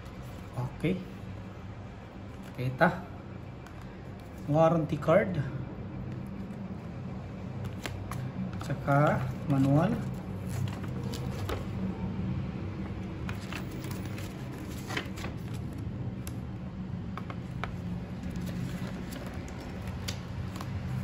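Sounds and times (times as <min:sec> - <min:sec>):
steady low hum: 0:00.0 - 0:21.0
paper pages rustling: 0:07.6 - 0:11.9, 0:12.8 - 0:16.4, 0:17.2 - 0:21.0.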